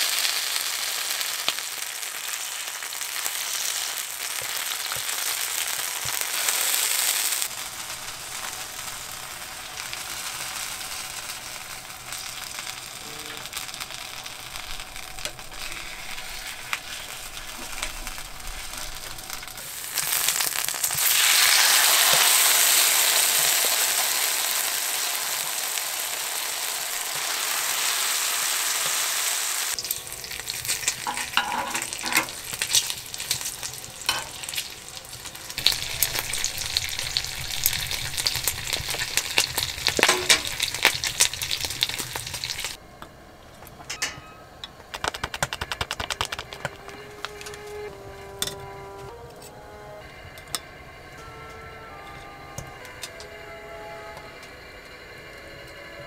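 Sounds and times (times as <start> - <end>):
food sizzling in a hot pan: 0.0 - 42.8.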